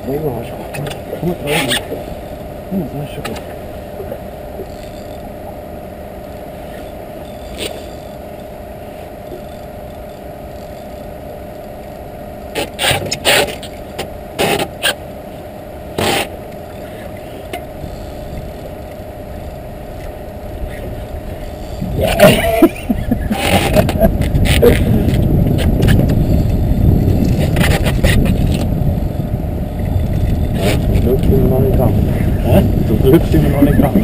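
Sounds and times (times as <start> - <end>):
steady hum: 0.0 - 34.0
fishing reel rasping: 4.6 - 5.8, 6.6 - 12.0, 16.0 - 31.0.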